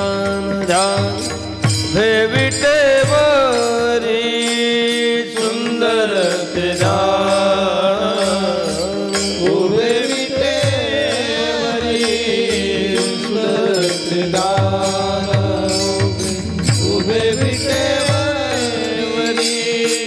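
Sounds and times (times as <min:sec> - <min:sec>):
man singing: 0:00.0 - 0:20.0
small hand cymbals: 0:00.0 - 0:20.0
drum beat: 0:00.1 - 0:04.0, 0:09.4 - 0:19.4.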